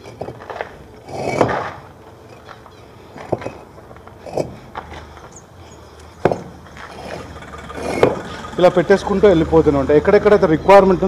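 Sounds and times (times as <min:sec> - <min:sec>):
brick scraping: 0:00.0 - 0:08.6
brick knocking on brick: 0:01.1 - 0:01.8, 0:04.2 - 0:04.6, 0:06.2 - 0:07.2, 0:07.8 - 0:08.3.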